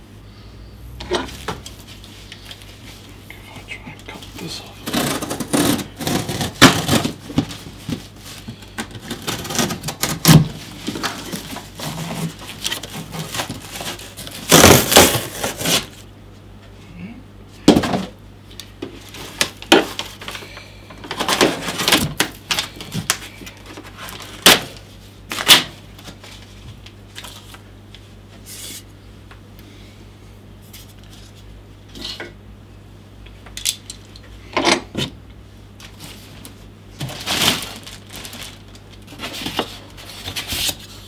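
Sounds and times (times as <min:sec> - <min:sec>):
cardboard box being cut: 0:13.9 - 0:16.0.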